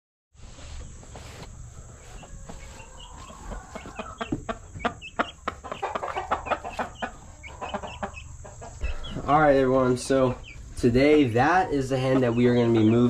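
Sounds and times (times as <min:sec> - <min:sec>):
chickens clucking: 0:00.5 - 0:13.0.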